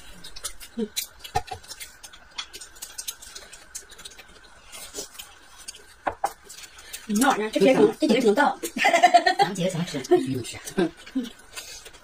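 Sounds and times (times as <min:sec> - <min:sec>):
chewing and wet mouth smacks: 0:00.1 - 0:07.2.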